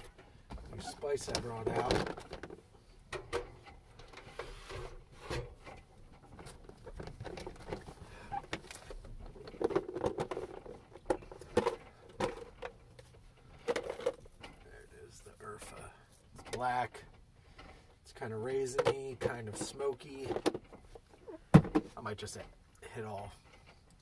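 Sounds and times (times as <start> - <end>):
plastic containers knocking and rustling: 0.0 - 14.8, 18.5 - 22.5.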